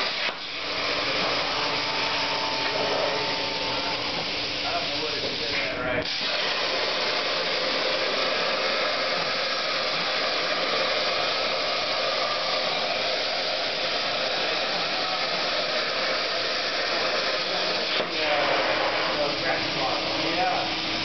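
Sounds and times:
plasma torch hissing: 0.0 - 21.0.

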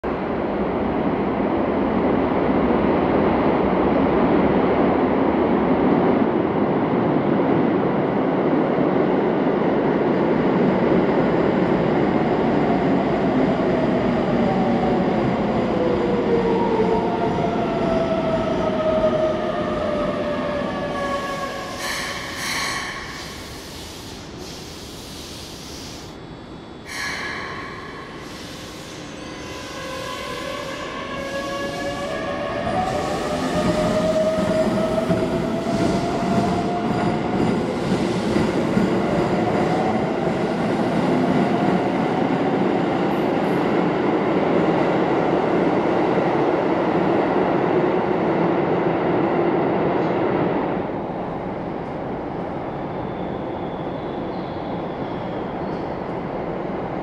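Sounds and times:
short air hisses: 21.7 - 26.2, 26.9 - 29.1.

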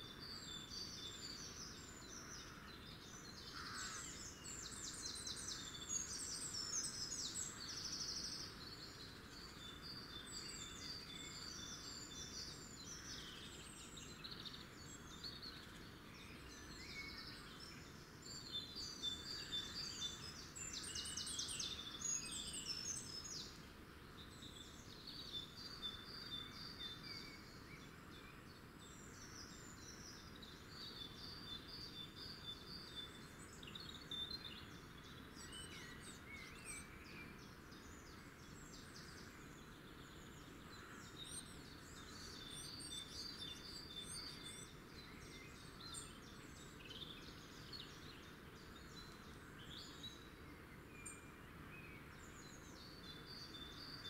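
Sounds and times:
open-air ambience hiss: 0.0 - 54.0
songbirds chirping: 0.0 - 54.0.

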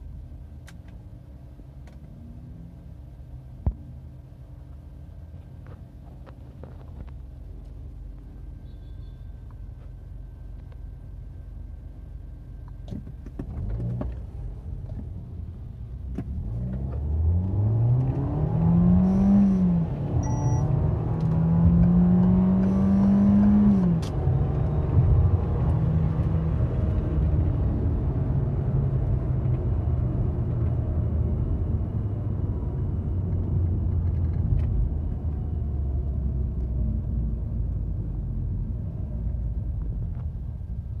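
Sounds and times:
car engine accelerating: 13.3 - 41.0.

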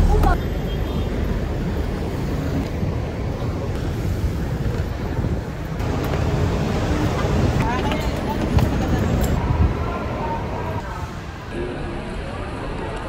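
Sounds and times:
low rumble of street noise: 0.0 - 13.0
wind buffeting microphone: 1.2 - 10.9.

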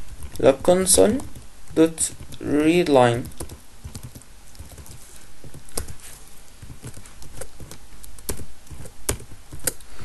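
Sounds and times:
keyboard keystrokes clicking: 0.1 - 6.0, 6.6 - 9.9.

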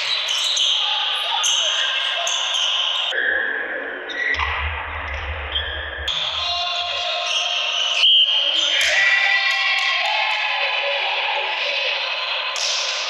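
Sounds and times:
sports hall noise: 0.0 - 13.0.

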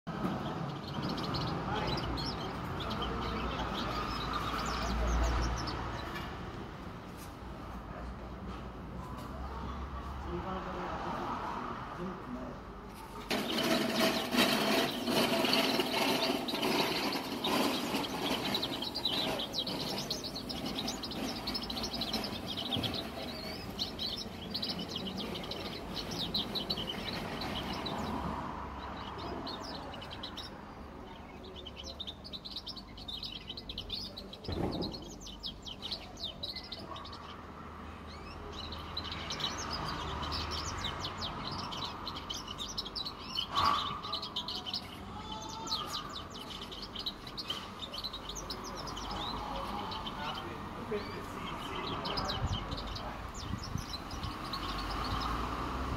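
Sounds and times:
bird twittering warble: 13.3 - 30.6.

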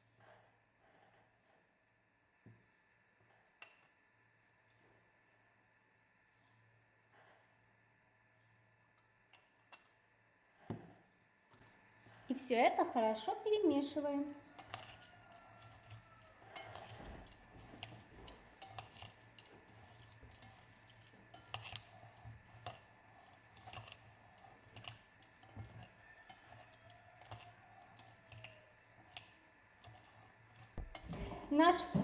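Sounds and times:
tongs clicking against glass bowl: 14.5 - 21.9, 23.6 - 31.1.

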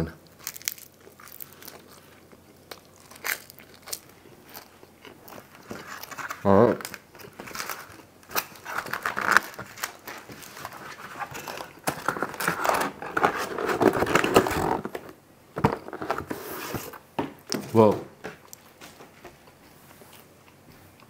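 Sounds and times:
paper liner crinkling: 0.4 - 15.2
cardboard flaps scraping: 8.6 - 17.0.

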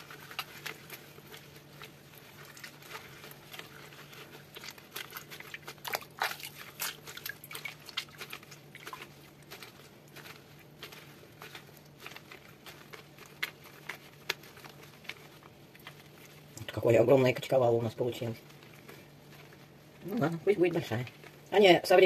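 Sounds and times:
liquid dripping: 0.0 - 10.6
cheese curd squelching: 0.0 - 22.0.

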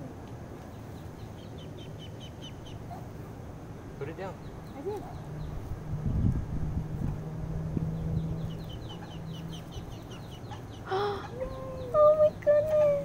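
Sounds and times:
steady low hum: 0.0 - 13.0
ducklings peeping: 0.6 - 3.1, 7.8 - 13.0.

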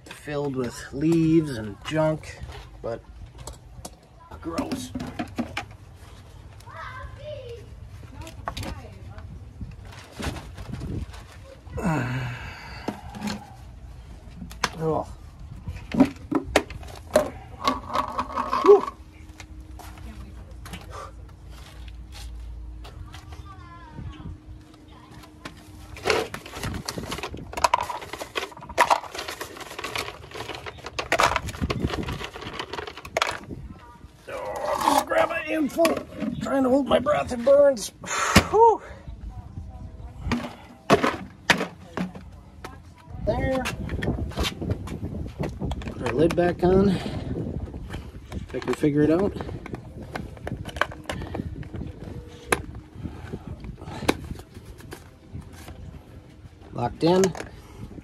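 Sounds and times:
objects knocking and clattering: 4.5 - 5.8, 15.7 - 19.0, 26.0 - 33.6, 40.2 - 42.3
handling noise: 24.7 - 37.7.

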